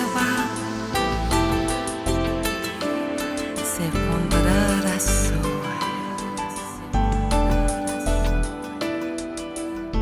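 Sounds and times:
background music sustained notes: 0.0 - 10.0.

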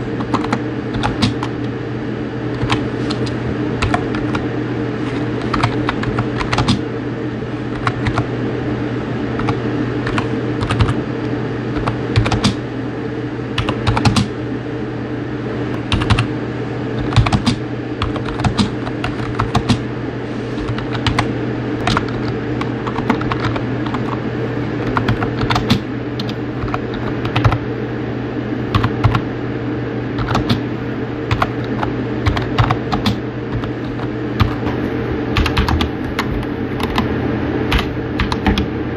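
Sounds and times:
steady low hum: 0.0 - 38.9
mechanical keyboard typing: 0.2 - 1.6, 2.5 - 4.5, 5.4 - 6.8, 7.7 - 8.3, 9.4 - 11.0, 11.8 - 12.6, 13.6 - 14.3, 15.9 - 16.3, 17.0 - 19.8, 20.6 - 24.2, 24.8 - 27.6, 28.7 - 29.2, 30.2 - 30.6, 31.3 - 34.6, 35.4 - 37.1, 37.7 - 38.7.

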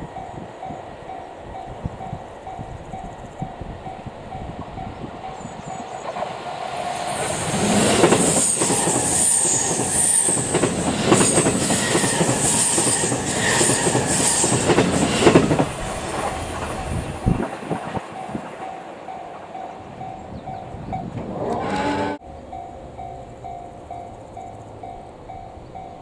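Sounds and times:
train rolling noise: 0.0 - 26.0
wheels clacking over rail joints: 4.3 - 26.0
high wheel squeal: 6.9 - 10.5, 11.2 - 15.2, 21.3 - 22.2.

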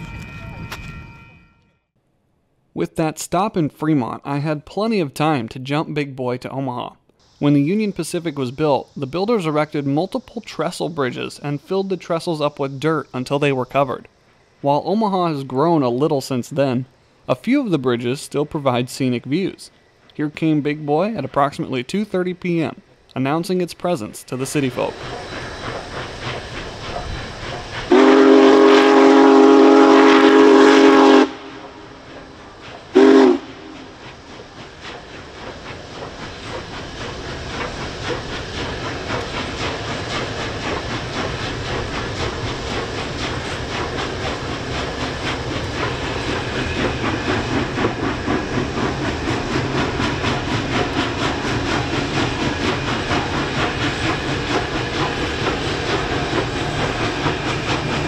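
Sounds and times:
train rumbling across bridge: 7.3 - 58.0
steam whistle blowing: 27.9 - 32.0, 33.0 - 34.0.

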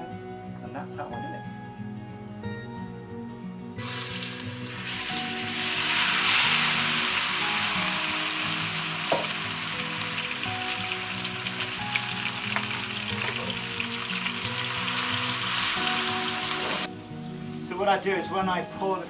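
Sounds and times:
fish sizzling in hot oil: 3.8 - 16.9.

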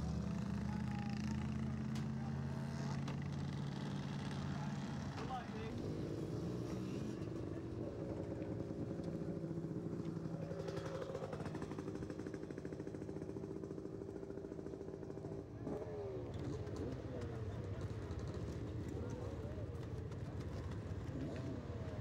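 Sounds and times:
dirt bike engines running: 0.0 - 22.0.

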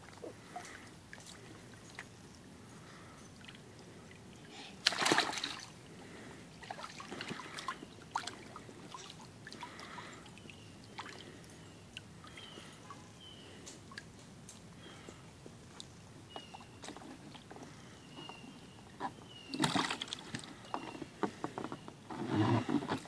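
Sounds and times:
water splashing in a pool: 3.4 - 5.9, 6.6 - 12.4, 19.5 - 20.5.

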